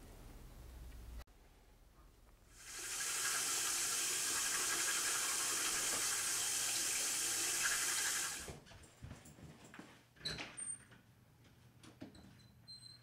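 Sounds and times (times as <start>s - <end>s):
sink tap running: 2.6s - 8.5s.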